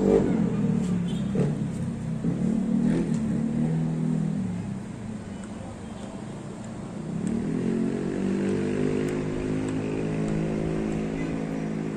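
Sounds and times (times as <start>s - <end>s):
vehicle engine running: 6.6s - 11.9s.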